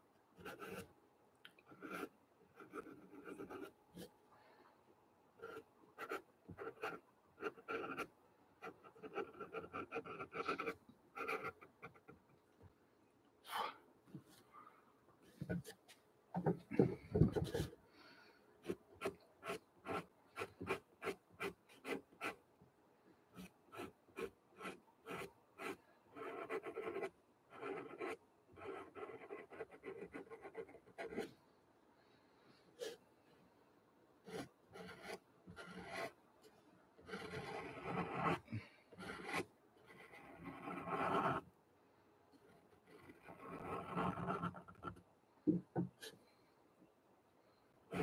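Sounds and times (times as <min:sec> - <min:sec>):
pencil scratching on paper: 0:00.4 - 0:00.9, 0:01.7 - 0:04.1, 0:05.4 - 0:12.2, 0:16.7 - 0:17.8, 0:18.6 - 0:22.4, 0:23.4 - 0:31.3, 0:34.3 - 0:36.2, 0:37.0 - 0:41.4, 0:42.5 - 0:45.0.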